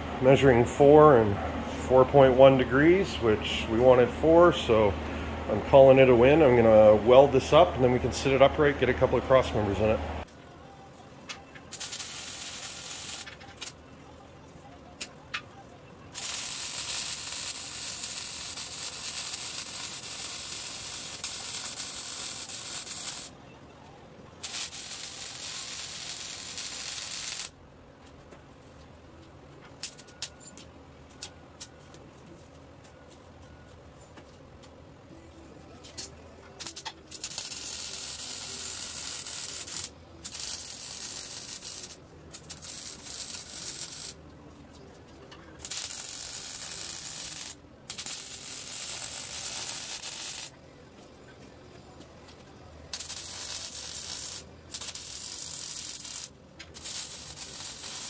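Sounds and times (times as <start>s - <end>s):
welder arc crackling and hissing: 11.7s - 13.8s, 16.1s - 23.4s, 24.4s - 27.6s, 35.9s - 44.2s, 45.6s - 50.6s, 52.9s - 58.0s.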